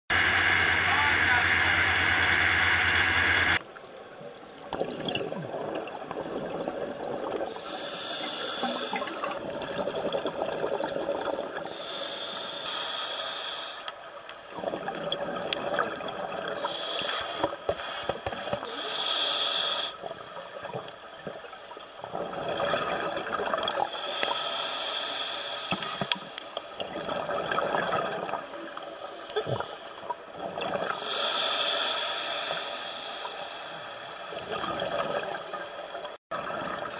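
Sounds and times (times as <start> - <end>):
underwater exhaled bubbles: 4.1 - 12.0, 14.5 - 18.8, 20.0 - 24.2, 26.8 - 31.2, 34.1 - 36.9
regulator breathing hiss: 7.5 - 9.4, 11.7 - 13.9, 16.6 - 20.0, 23.9 - 26.4, 31.0 - 33.9.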